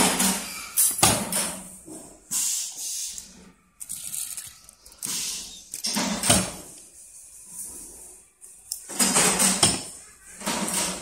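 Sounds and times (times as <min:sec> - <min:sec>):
small metal parts clattering: 0:03.8 - 0:06.4.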